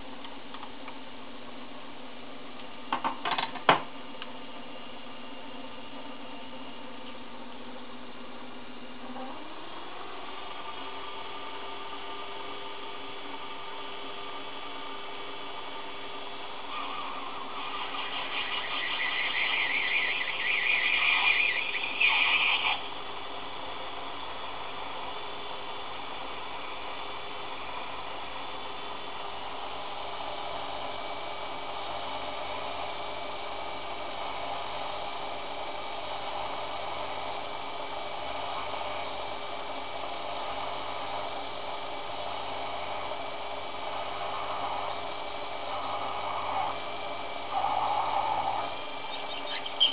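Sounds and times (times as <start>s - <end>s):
lathe drilling into metal: 16.6s - 23.0s
brief high squeal: 16.8s - 22.8s, 49.1s - 49.9s.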